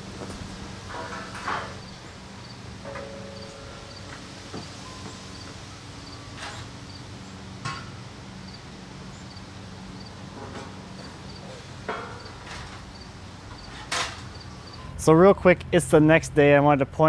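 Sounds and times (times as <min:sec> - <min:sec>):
insect chirping: 0:01.8 - 0:07.2, 0:08.4 - 0:10.2, 0:12.2 - 0:14.9.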